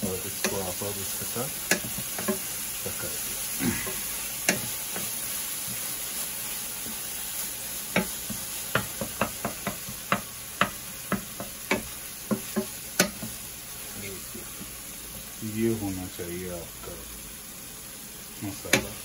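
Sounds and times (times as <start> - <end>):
masala sizzling in pan: 0.0 - 19.0
spatula knocking against pan: 1.6 - 2.5, 4.4 - 5.1, 7.9 - 13.4.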